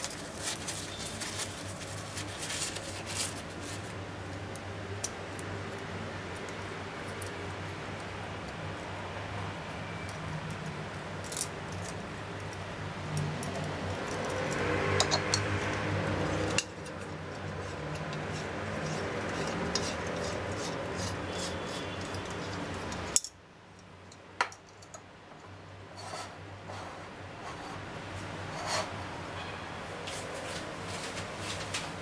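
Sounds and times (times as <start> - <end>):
metal scraping: 14.0 - 23.2.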